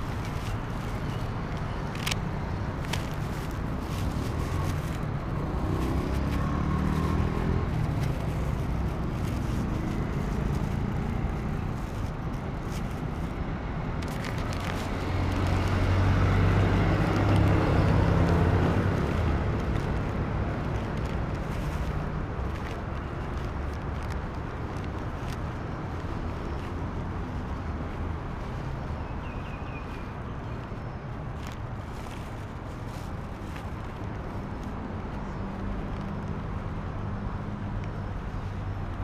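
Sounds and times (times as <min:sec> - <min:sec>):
road traffic: 0:00.0 - 0:39.0
vehicle engine passing: 0:03.9 - 0:11.6.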